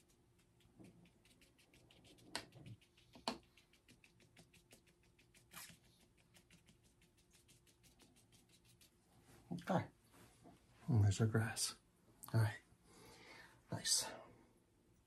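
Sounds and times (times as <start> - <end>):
paintbrush tapping on paper: 0.3 - 8.6.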